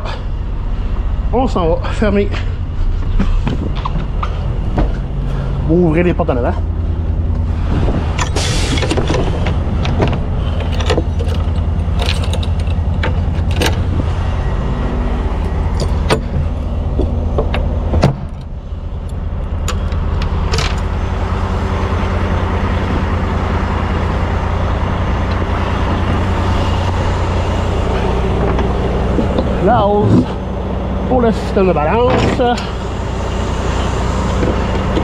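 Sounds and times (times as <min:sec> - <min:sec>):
diesel engine idling: 0:00.0 - 0:35.0
metallic clanks and knocks: 0:08.1 - 0:13.9.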